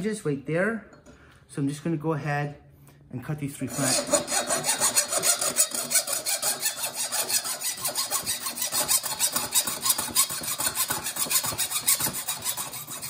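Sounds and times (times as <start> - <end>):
hacksaw cutting metal: 3.7 - 13.0.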